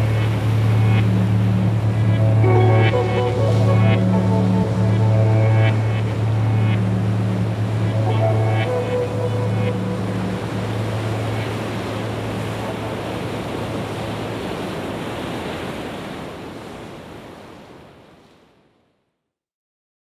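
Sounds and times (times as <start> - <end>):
low held music tone: 0.0 - 14.1
steady rushing noise: 0.0 - 16.4.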